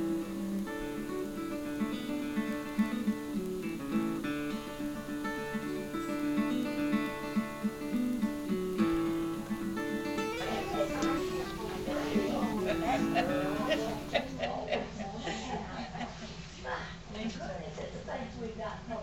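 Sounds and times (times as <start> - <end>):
acoustic guitar picking: 0.0 - 14.3.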